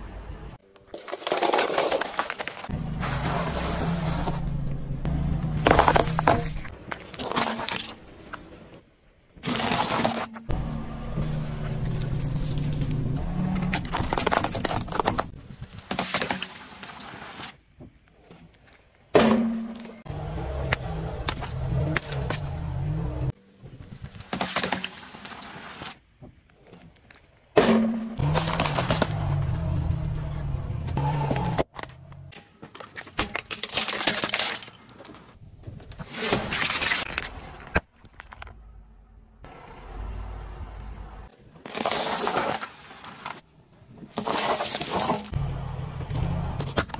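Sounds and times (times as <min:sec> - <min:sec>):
tyre crushing brittle objects: 0:00.8 - 0:03.4, 0:05.6 - 0:08.0, 0:09.4 - 0:10.5, 0:13.4 - 0:16.6, 0:28.2 - 0:29.7, 0:31.2 - 0:35.3, 0:41.6 - 0:43.4, 0:44.1 - 0:45.4
low engine hum: 0:02.7 - 0:06.7, 0:10.5 - 0:14.1, 0:20.1 - 0:23.4, 0:28.2 - 0:32.3, 0:45.4 - 0:46.9
tyre crushing carton: 0:28.2 - 0:29.5.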